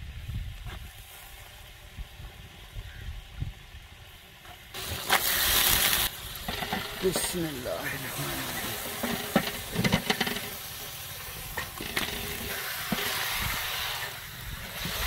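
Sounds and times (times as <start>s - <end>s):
meat sizzling in hot oil: 4.7s - 15.0s.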